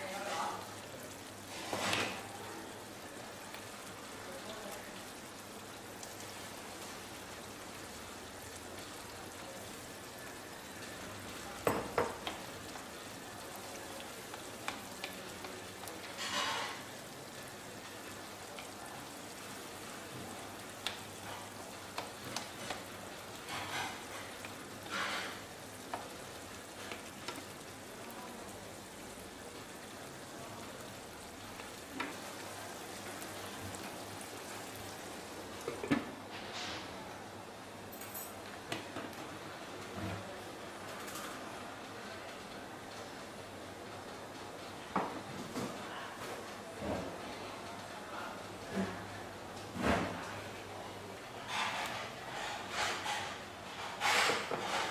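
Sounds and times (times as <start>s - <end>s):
sauce simmering with hiss: 0.0s - 54.9s
spoon scraping pan: 51.5s - 54.9s.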